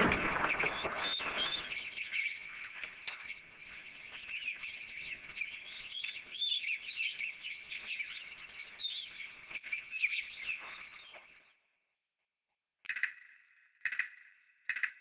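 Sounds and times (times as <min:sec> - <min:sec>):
small birds chirping: 0:00.0 - 0:11.7.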